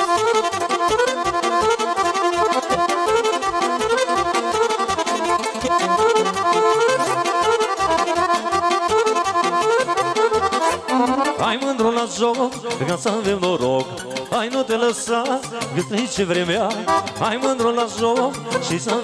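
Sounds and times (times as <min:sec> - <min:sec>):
steady bass beat: 0:00.0 - 0:12.0
accordion melody: 0:00.0 - 0:19.0
instrumental folk dance music: 0:00.0 - 0:19.0.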